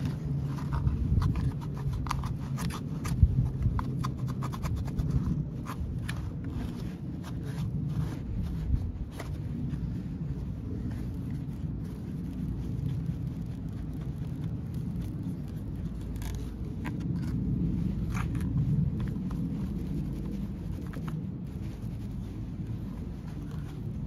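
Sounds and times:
cloth rustling against microphone: 0:00.0 - 0:24.0
muffled low rumble: 0:00.0 - 0:24.0.

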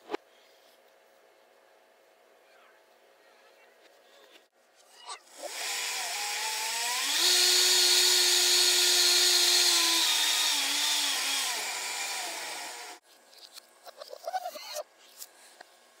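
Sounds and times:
blender motor whine: 0:05.3 - 0:13.0.

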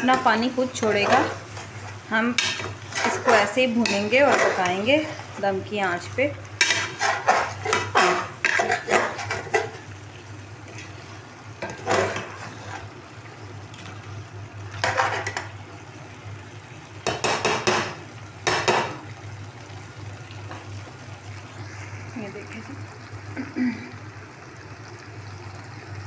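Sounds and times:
spoon scraping metal pot: 0:00.0 - 0:05.3, 0:06.6 - 0:09.9.

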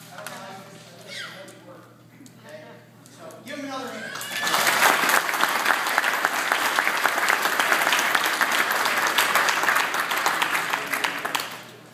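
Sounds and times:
audience applauding: 0:04.1 - 0:11.8.

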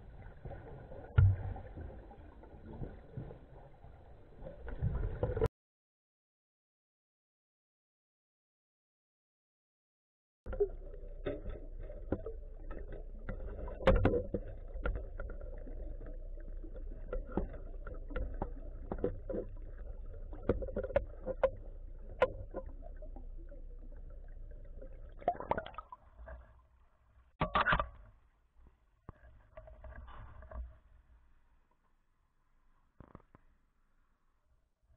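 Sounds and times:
underwater low rumble: 0:00.0 - 0:05.5, 0:10.5 - 0:27.4
water splashes: 0:00.0 - 0:05.5, 0:10.5 - 0:26.8.

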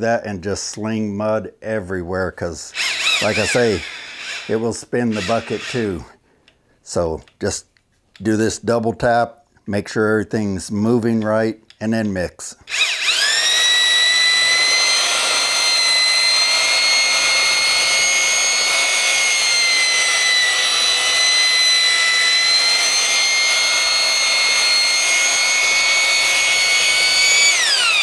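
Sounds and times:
mixing drill whining: 0:02.7 - 0:06.0, 0:12.7 - 0:28.0.

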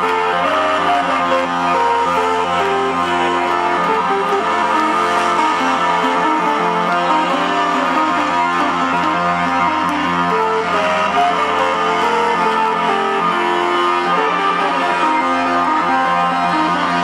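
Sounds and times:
electronic dance music: 0:00.0 - 0:17.0.

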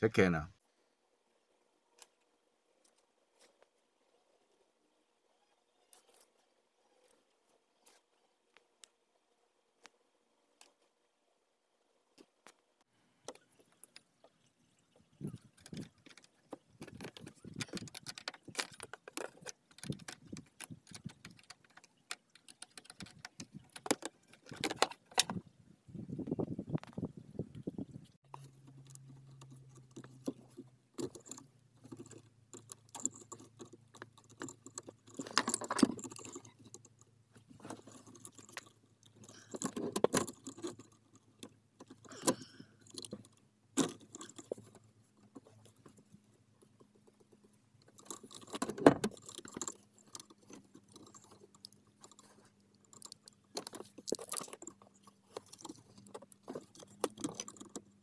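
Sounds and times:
tools and metal parts clinking: 0:28.3 - 0:44.8, 0:47.9 - 0:58.0.

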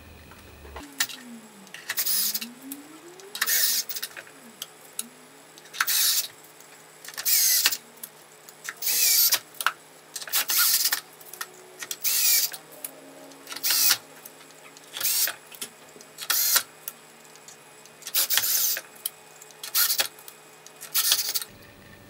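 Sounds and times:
cordless drill driving screws: 0:07.2 - 0:07.8.

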